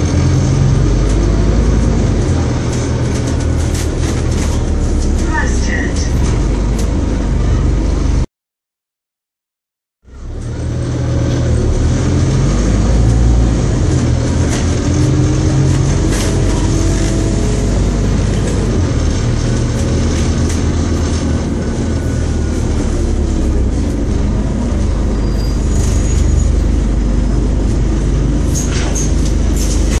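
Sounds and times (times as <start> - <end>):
bus engine drone: 0.0 - 8.3, 10.0 - 30.0
bus body clicks and rattles: 1.0 - 5.4, 6.2 - 7.1, 13.0 - 22.0, 27.0 - 30.0.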